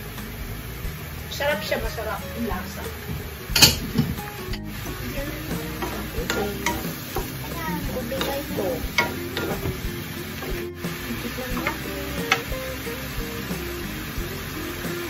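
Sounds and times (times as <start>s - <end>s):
sauce sizzling: 0.0s - 15.0s
wooden spatula scraping a pan: 1.6s - 12.6s.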